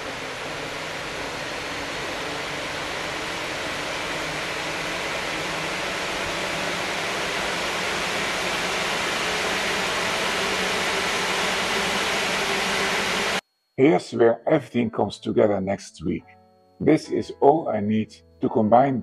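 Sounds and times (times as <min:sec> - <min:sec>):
radiator cooling fan running: 0:00.0 - 0:13.4.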